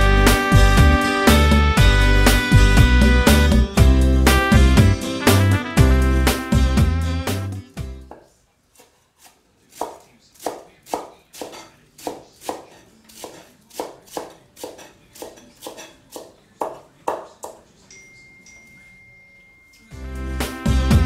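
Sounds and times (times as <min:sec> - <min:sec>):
cleaver chopping on wooden board: 0:08.1 - 0:17.6
faint high tone: 0:17.9 - 0:20.0.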